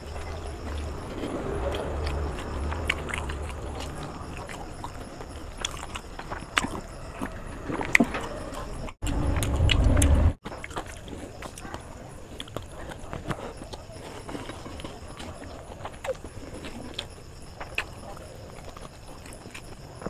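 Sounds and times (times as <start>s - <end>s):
low hum: 0.0s - 10.4s
chewing and mouth sounds: 0.0s - 20.0s.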